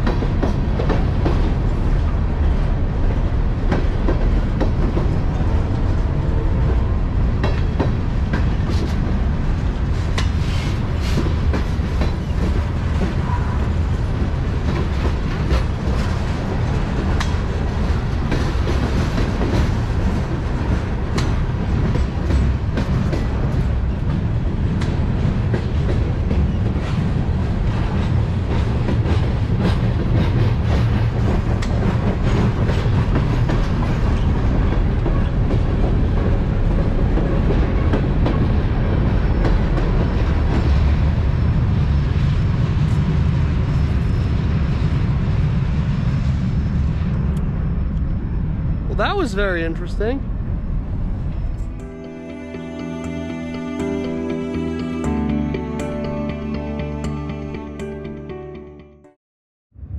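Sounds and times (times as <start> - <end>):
wheels clacking over rail joints: 0.0 - 41.1
train wheels rumbling on rail: 0.0 - 57.4.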